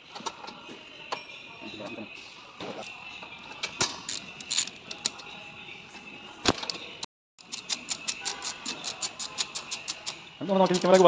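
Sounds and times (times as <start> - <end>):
ratchet clicking: 4.1 - 5.2, 7.4 - 11.0.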